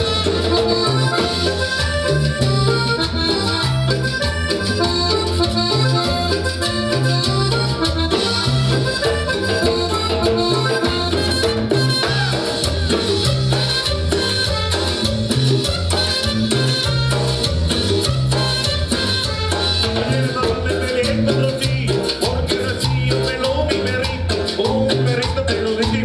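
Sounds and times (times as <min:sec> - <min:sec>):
live cumbia band playing: 0:00.0 - 0:26.0
trumpets: 0:06.4 - 0:20.2.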